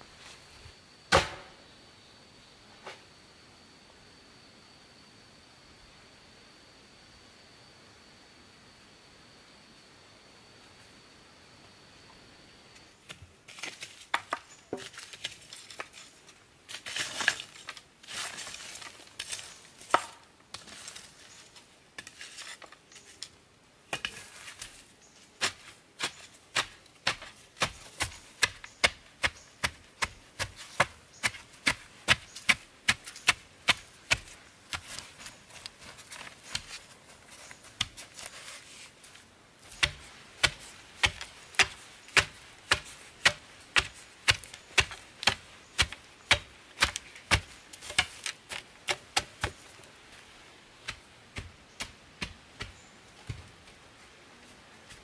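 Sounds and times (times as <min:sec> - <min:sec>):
wooden stick tamping soil: 0:13.0 - 0:54.0.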